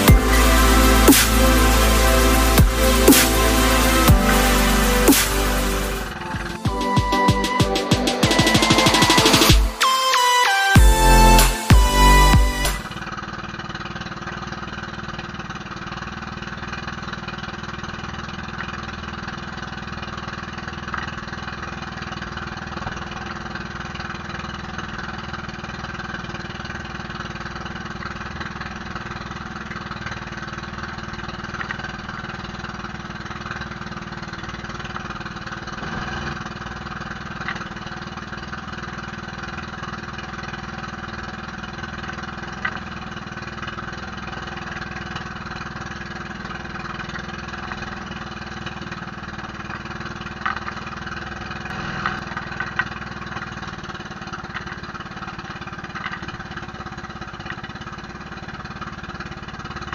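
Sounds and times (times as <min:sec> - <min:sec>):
boat engine running steadily: 0:13.0 - 0:59.9.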